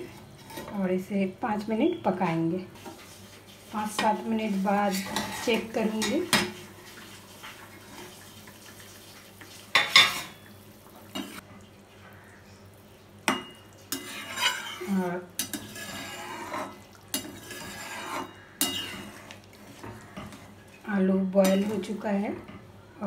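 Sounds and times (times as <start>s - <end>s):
metal spatula scraping pan: 2.8s - 6.6s, 13.9s - 20.6s.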